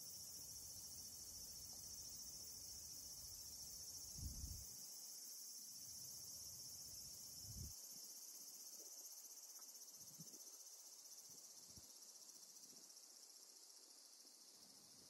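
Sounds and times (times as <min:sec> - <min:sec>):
insects trilling: 0:00.0 - 0:15.0.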